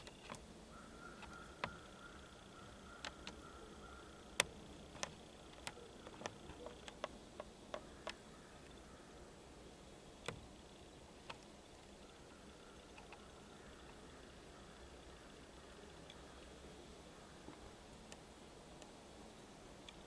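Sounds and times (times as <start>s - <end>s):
faint sharp clicks: 4.3s - 8.8s, 11.2s - 12.2s, 12.8s - 14.0s, 17.4s - 19.0s.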